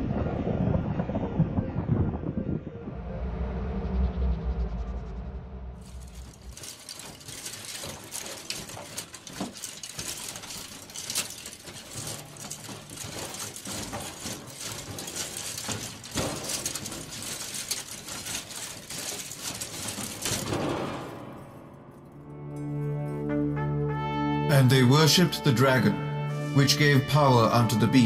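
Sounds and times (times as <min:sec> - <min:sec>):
dense crackling and clicking: 0:05.8 - 0:22.2.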